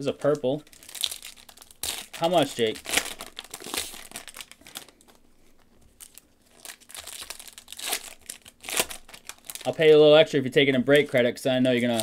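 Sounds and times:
wrapper crinkling: 0.2 - 10.1, 11.7 - 12.0
cards rustling: 11.6 - 12.0.

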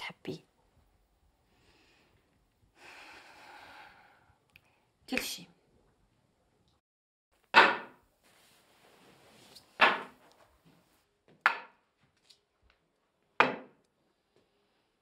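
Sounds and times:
walking cane striking hard floor: 9.8 - 11.7.

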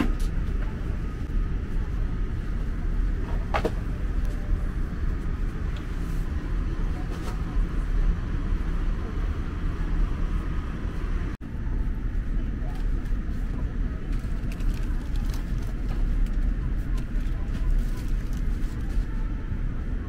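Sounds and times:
airplane cabin rumble: 0.0 - 20.0.

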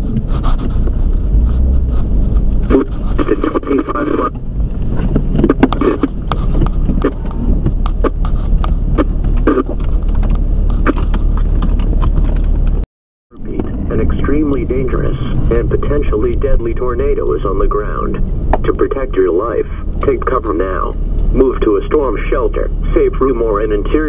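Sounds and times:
windshield wiper scraping: 0.0 - 12.8
steady low rumble: 0.0 - 24.0.

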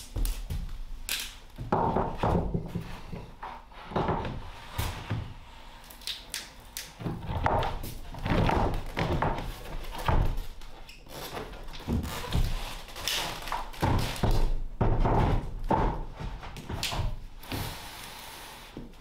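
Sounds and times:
wooden floorboards knocking: 1.6 - 5.4, 7.0 - 10.6, 11.3 - 17.4.

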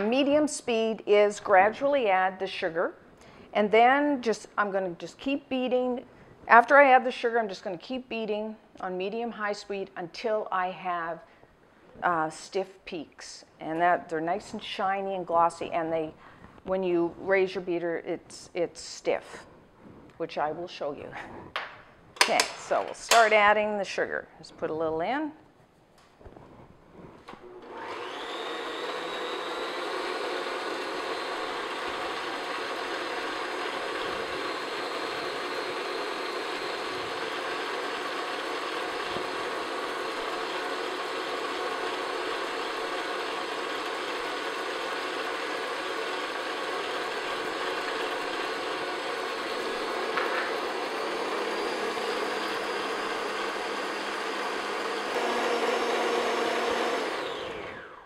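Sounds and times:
stand mixer motor whipping: 27.5 - 58.0.

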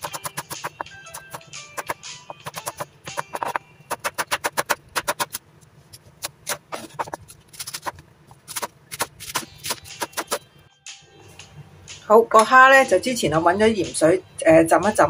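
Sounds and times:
knife chopping on wooden board: 0.0 - 5.4.

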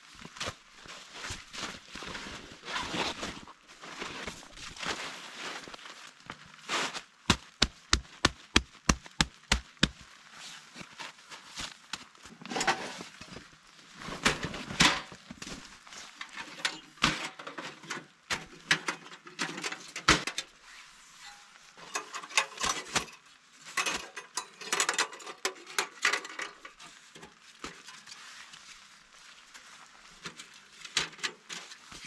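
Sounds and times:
metal panels clinking and scraping: 12.4 - 13.0, 14.2 - 15.1, 16.1 - 20.6, 21.2 - 28.2.

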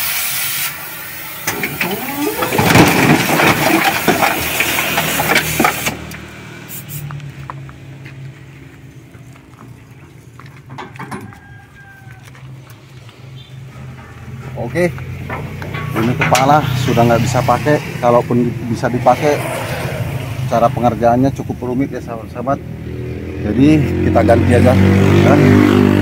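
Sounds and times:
metal crashing and scraping: 1.4 - 6.3, 13.6 - 17.4.

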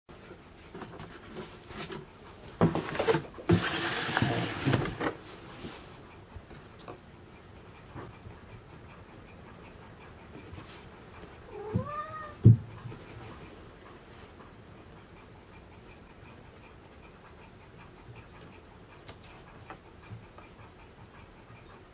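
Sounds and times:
cat meowing: 11.5 - 12.4.

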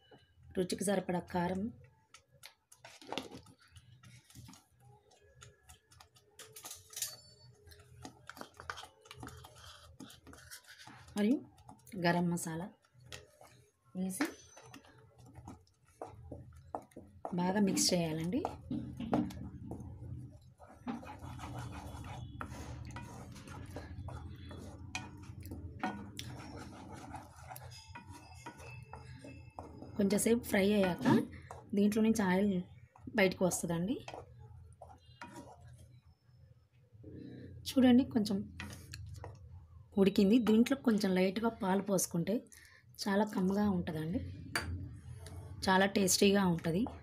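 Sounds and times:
wooden spatula scraping a pan: 7.6 - 11.8, 14.2 - 31.7, 34.0 - 36.0.

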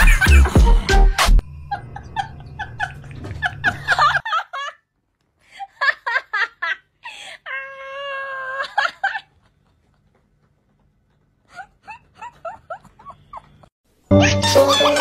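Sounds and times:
person giggling: 0.0 - 0.9, 5.5 - 10.1, 11.4 - 15.0
high-pitched wailing cries: 7.5 - 9.0.

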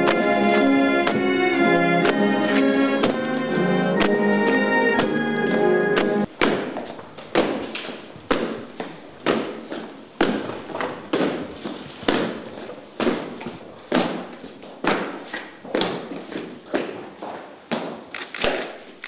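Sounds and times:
echoing thuds: 0.0 - 15.2.

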